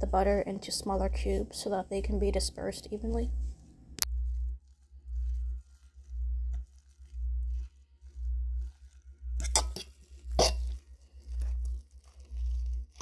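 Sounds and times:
pulsing low hum: 0.0s - 13.0s
utensil stirring mashed potatoes: 4.2s - 13.0s
sharp scrapes in bowl: 5.1s - 13.0s.

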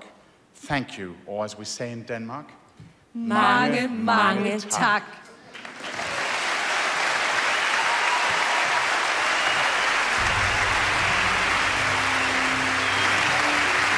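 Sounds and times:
large audience applauding: 5.5s - 13.9s
low music: 10.2s - 13.9s.

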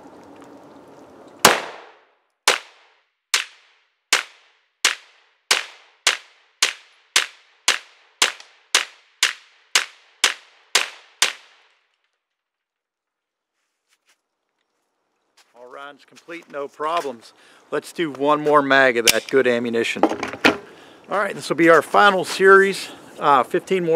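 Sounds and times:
pistol shots: 1.4s - 11.6s.

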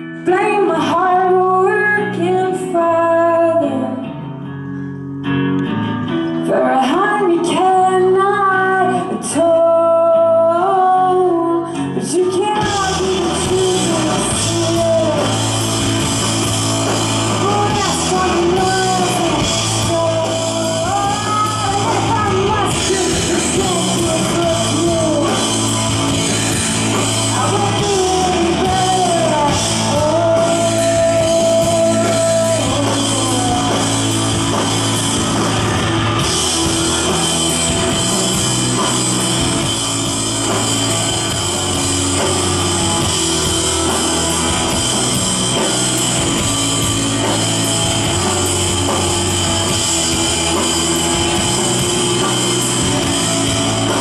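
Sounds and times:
live rock band playing: 0.0s - 54.0s
electric guitar lead line sliding: 11.7s - 54.0s.

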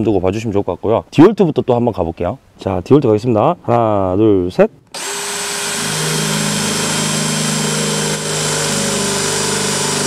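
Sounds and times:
drill whining through steel: 4.9s - 10.0s.

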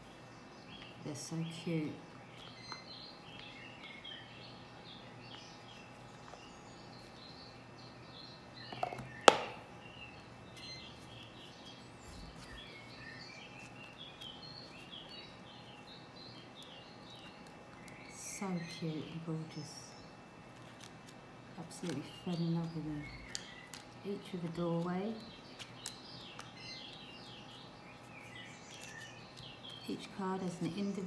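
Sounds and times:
birds chirping: 0.0s - 31.0s.

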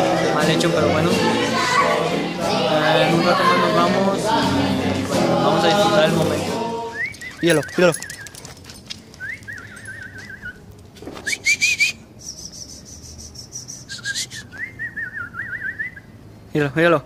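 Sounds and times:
short rising whistle: 11.2s - 16.0s
wavering warbling whistle: 11.2s - 16.0s.

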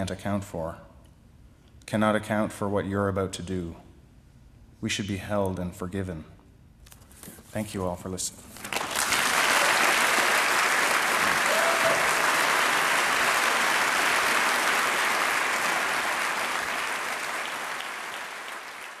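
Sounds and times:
audience applauding: 8.6s - 19.0s.

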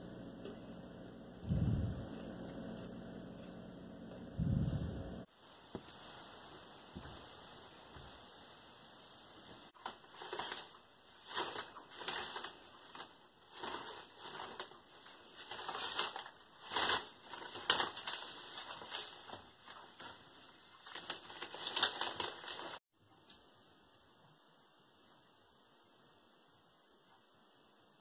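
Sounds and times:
newspaper pages rustling: 9.7s - 22.8s.

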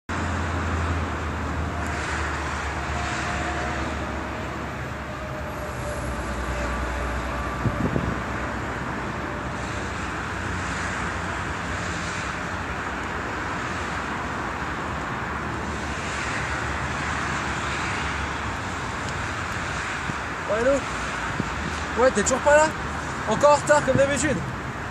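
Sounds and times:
road traffic rumble: 0.1s - 24.9s.

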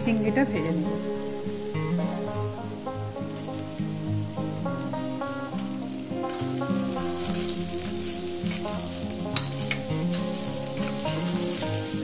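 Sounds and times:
background music: 0.0s - 12.0s
vegetables sizzling in hot oil: 0.0s - 12.0s
metal spatula scraping a pan: 6.3s - 12.0s.

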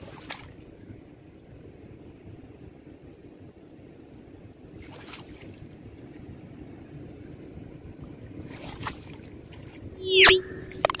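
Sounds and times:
rising whoosh: 10.0s - 10.8s.

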